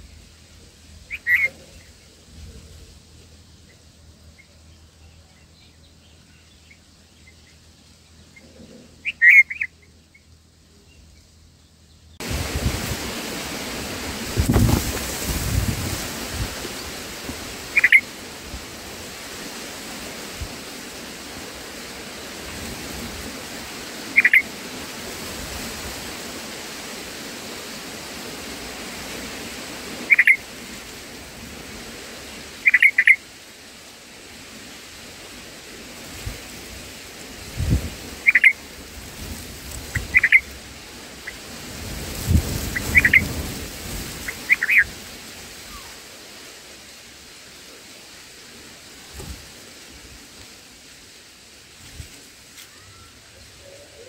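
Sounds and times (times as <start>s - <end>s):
rain hissing: 0.0s - 54.0s
bird chirping: 1.1s - 2.1s, 3.6s - 12.2s, 17.8s - 18.0s, 30.1s - 30.4s, 38.3s - 38.6s, 39.9s - 40.5s, 42.8s - 43.2s.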